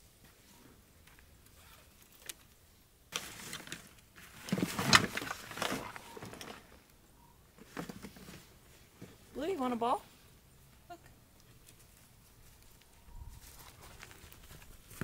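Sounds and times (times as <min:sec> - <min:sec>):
rummaging in plastic tote: 0:03.2 - 0:06.8.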